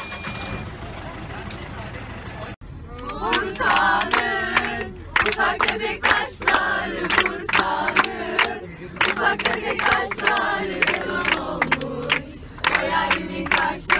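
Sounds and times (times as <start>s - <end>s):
girls singing and shouting: 2.9s - 13.9s
rhythmic hand clapping: 3.0s - 13.9s.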